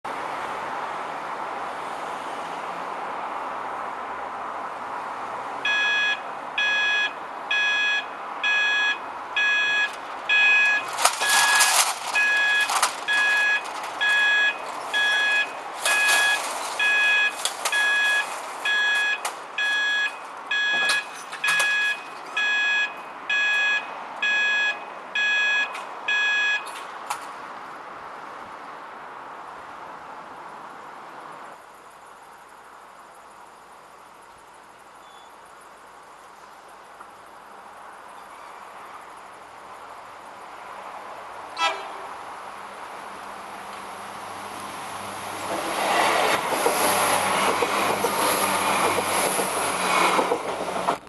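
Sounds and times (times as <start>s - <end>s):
level crossing alarm beeping: 5.6s - 26.8s.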